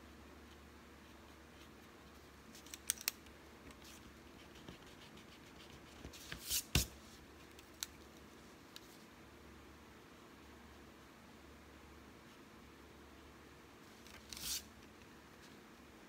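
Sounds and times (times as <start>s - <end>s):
pencil drawing: 3.8s - 6.9s.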